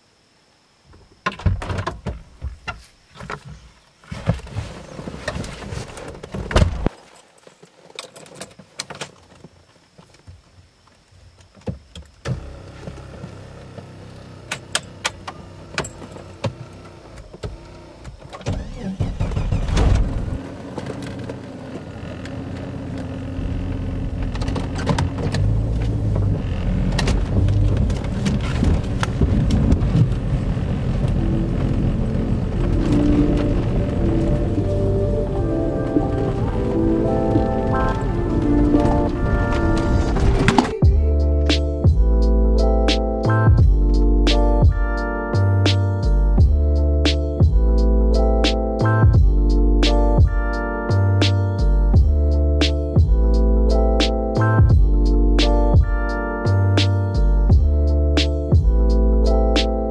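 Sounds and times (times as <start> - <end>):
car engine hum: 12.2 - 59.9
clicks and knocks in car cabin: 24.1 - 30.2.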